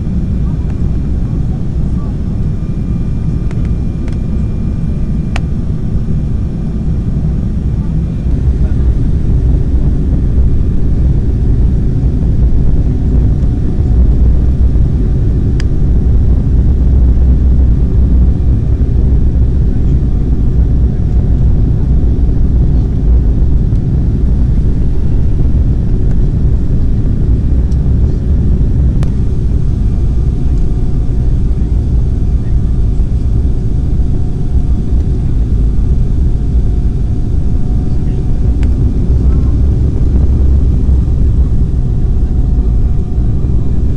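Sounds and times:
jet engine cabin rumble: 0.0s - 43.9s
faint click: 3.5s - 4.2s.

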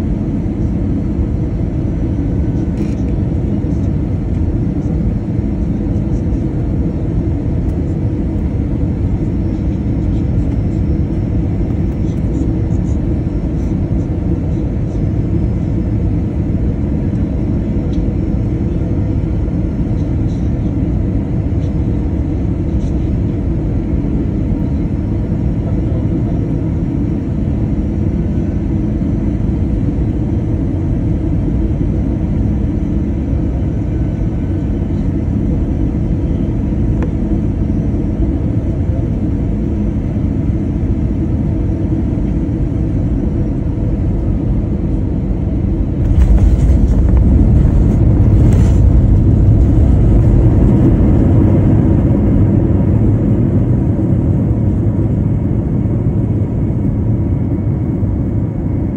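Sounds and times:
airliner cabin engine rumble: 0.0s - 58.9s.

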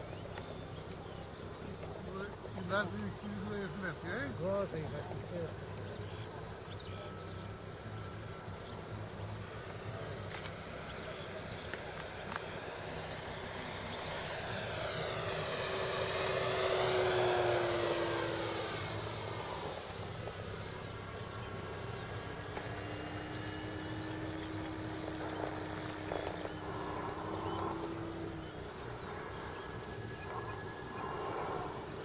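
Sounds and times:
model plane propeller hum: 0.0s - 32.0s.

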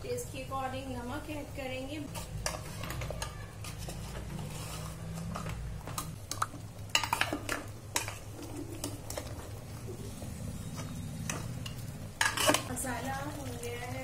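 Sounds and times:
metal ladle clinking and scraping: 6.9s - 9.3s, 10.7s - 12.8s.

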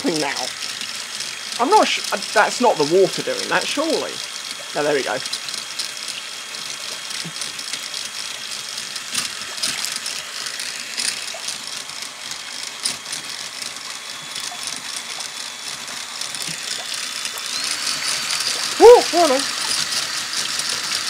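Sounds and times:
electric drill motor whining: 0.0s - 21.0s
water spraying: 1.4s - 5.3s, 16.2s - 21.0s.

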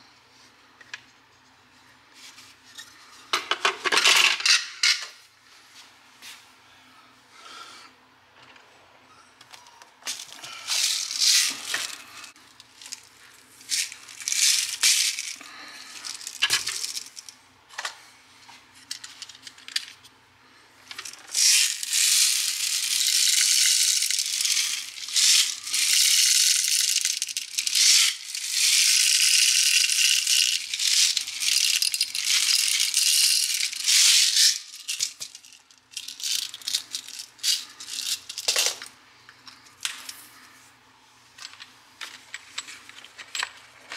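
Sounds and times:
metal bbs rattling into magazine: 21.0s - 38.8s.

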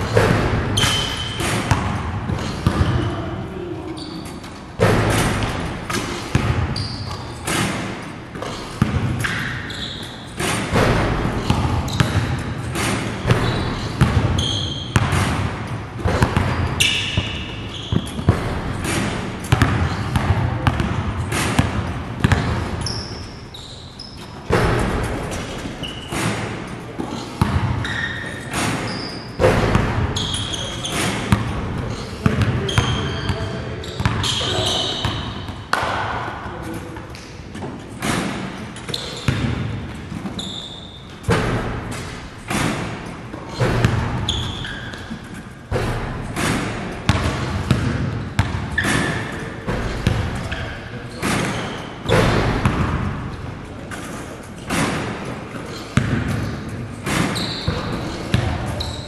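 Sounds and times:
basketballs bouncing on court: 0.0s - 59.0s.

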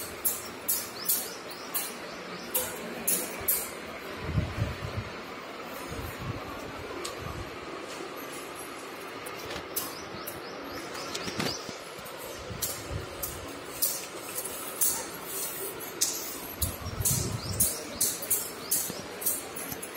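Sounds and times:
bangles clinking: 0.0s - 2.0s, 12.0s - 19.9s.

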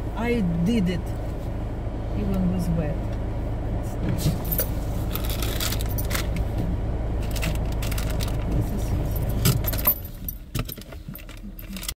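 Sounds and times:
car idling: 0.0s - 11.9s
metallic jingling: 9.0s - 10.5s.

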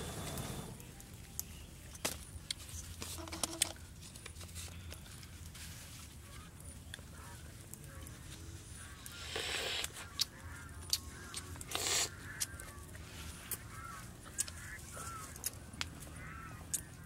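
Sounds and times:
person slurping: 9.2s - 10.0s, 11.7s - 12.1s.

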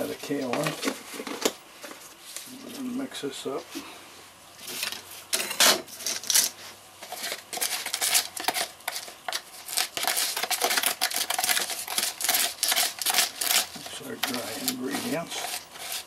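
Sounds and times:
stick scraping dry concrete mix: 4.6s - 16.0s.

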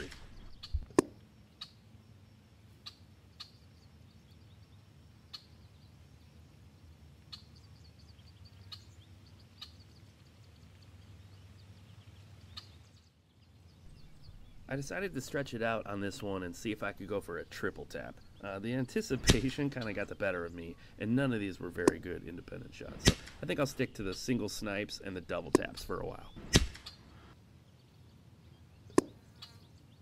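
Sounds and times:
sharp crack: 0.0s - 1.2s, 13.9s - 21.0s, 21.7s - 24.6s, 25.3s - 27.0s
faint bird chirps: 0.0s - 2.0s, 2.7s - 22.2s, 25.6s - 30.0s
low steady hum: 3.7s - 29.2s.

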